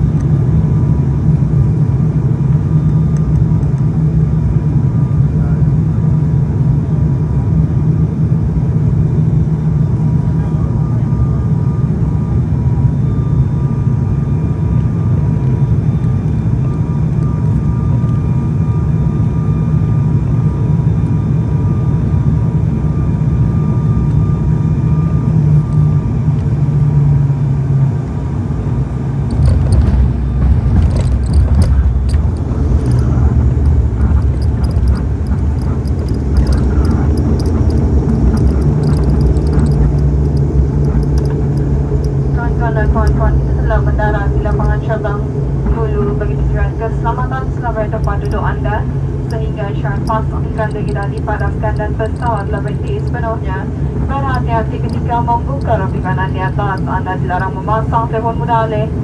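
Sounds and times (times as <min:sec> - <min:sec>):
propeller engines droning: 0:00.0 - 0:59.0
faint whining tones: 0:09.1 - 0:59.0
runway rumble with rattling: 0:21.3 - 0:59.0.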